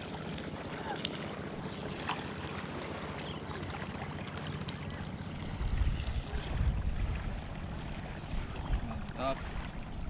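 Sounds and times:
wind buffeting microphone: 0:05.3 - 0:10.0.

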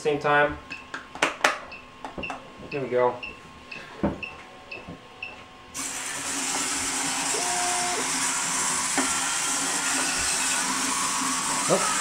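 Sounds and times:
electric motors whirring: 0:05.8 - 0:12.0.

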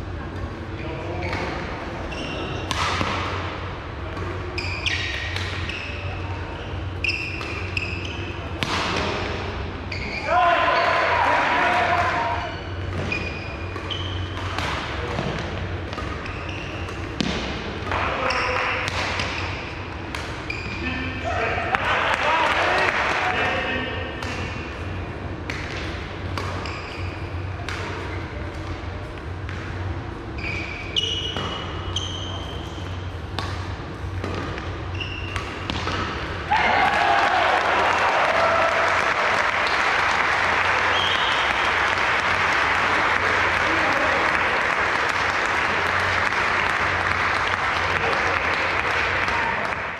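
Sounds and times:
shoes squeaking on court floor: 0:00.8 - 0:02.8, 0:04.4 - 0:08.5, 0:09.9 - 0:11.0, 0:12.2 - 0:17.3, 0:18.0 - 0:19.8, 0:20.4 - 0:21.0, 0:25.8 - 0:28.4, 0:30.3 - 0:33.2, 0:34.3 - 0:36.3
racket hitting shuttlecock: 0:02.6 - 0:03.5, 0:04.1 - 0:05.9, 0:07.0 - 0:09.4, 0:11.7 - 0:20.8, 0:25.4 - 0:29.8, 0:31.0 - 0:31.8, 0:32.8 - 0:37.0
racket striking shuttlecock: 0:02.6 - 0:03.5, 0:25.4 - 0:27.0, 0:27.6 - 0:28.7, 0:33.3 - 0:36.4
applause: 0:37.1 - 0:49.9.

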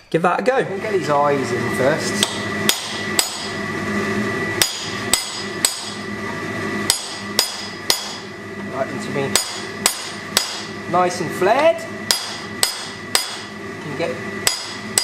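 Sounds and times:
hammer striking steel punch: 0:02.2 - 0:03.5, 0:04.6 - 0:06.0, 0:06.9 - 0:08.3, 0:09.3 - 0:10.7, 0:12.1 - 0:13.5, 0:14.4 - 0:15.0.

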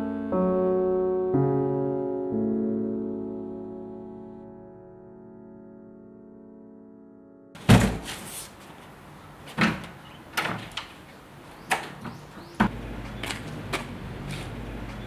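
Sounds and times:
piano music: 0:00.0 - 0:07.6.

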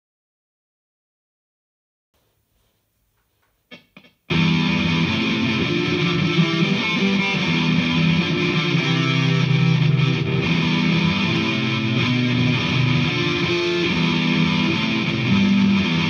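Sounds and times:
distorted electric guitar riff: 0:03.3 - 0:16.0.

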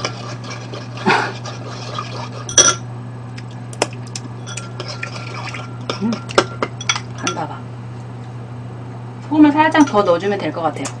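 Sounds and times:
spoon clinking ceramic bowl: 0:02.5 - 0:02.8, 0:04.4 - 0:07.5, 0:09.8 - 0:10.1.

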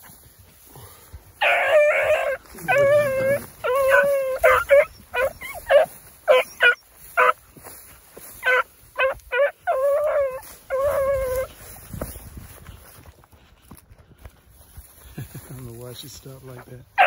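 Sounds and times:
beagles baying: 0:01.2 - 0:11.8.

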